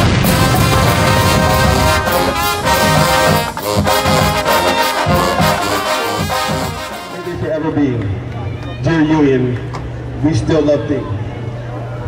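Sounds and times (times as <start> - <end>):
marching band brass playing: 0.0 - 7.9.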